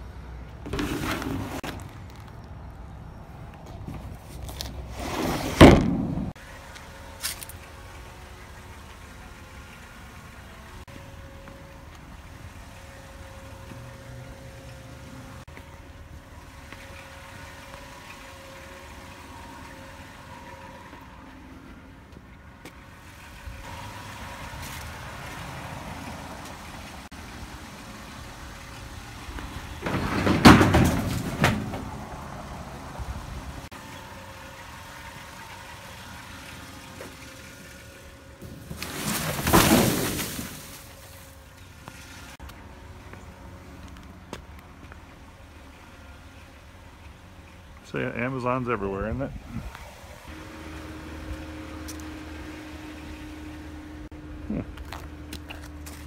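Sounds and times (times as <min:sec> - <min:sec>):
vehicle engine idling: 0:06.1 - 0:29.9, 0:31.8 - 0:38.7.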